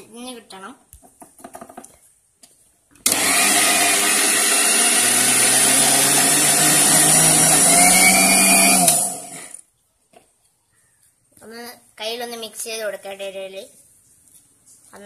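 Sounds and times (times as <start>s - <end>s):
electric mixer grinder running: 3.1s - 9.6s.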